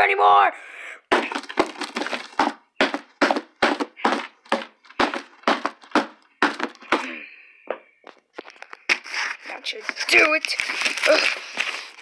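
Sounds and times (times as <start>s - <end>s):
rod stabbing cardboard box: 1.1s - 7.0s.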